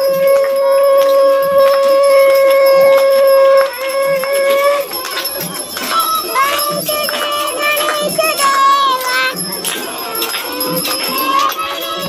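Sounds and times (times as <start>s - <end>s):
conch shell blowing: 0.0s - 12.0s.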